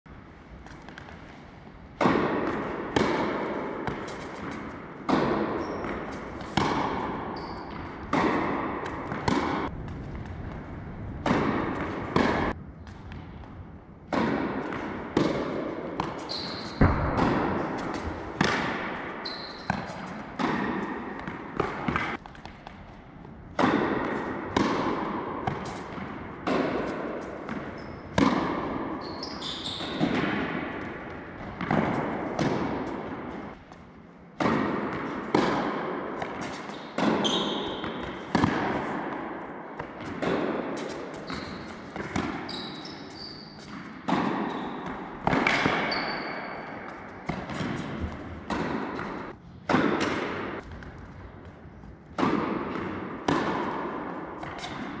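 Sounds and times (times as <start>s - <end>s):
tennis racket strikes: 1.9s - 10.4s, 11.1s - 13.3s, 14.0s - 22.5s, 23.5s - 50.9s, 52.1s - 55.0s
tennis ball bounces: 1.9s - 55.0s.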